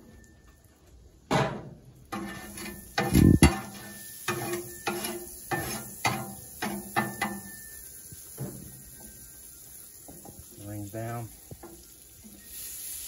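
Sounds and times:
metal spatula scraping griddle: 1.6s - 10.3s.

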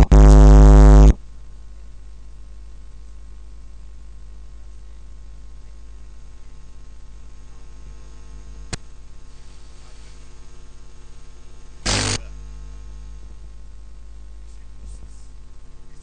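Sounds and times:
loud burst of noise: 0.0s - 1.2s, 11.8s - 12.4s
electrical mains hum: 0.0s - 16.0s.

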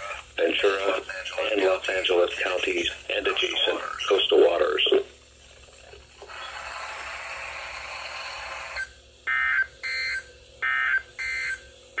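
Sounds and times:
radio hiss: 0.0s - 5.3s.

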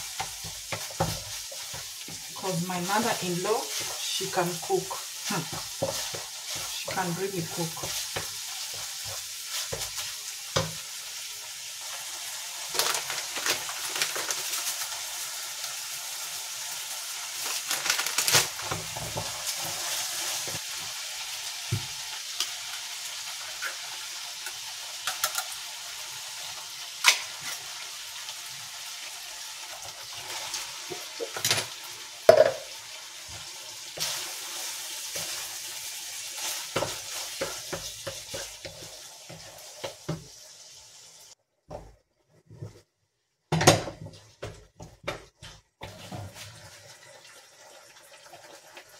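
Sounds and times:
wooden spatula scraping a pan: 0.0s - 10.9s, 18.6s - 20.9s, 29.7s - 32.4s, 33.2s - 40.4s, 41.7s - 42.9s, 43.9s - 46.8s
meat sizzling in a frying pan: 0.0s - 41.4s, 44.6s - 48.9s.

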